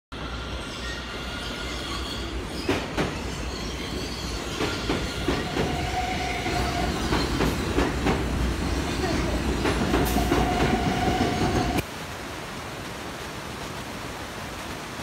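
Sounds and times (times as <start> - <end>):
train rail rumble: 0.2 - 11.8
wheels clacking over rail joints: 2.5 - 11.8.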